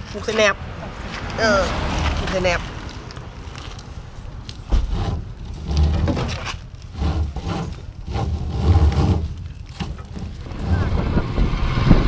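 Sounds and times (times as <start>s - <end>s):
low rumbling bumps: 0.0s - 12.0s
rope and hands rubbing and knocking: 2.0s - 11.0s.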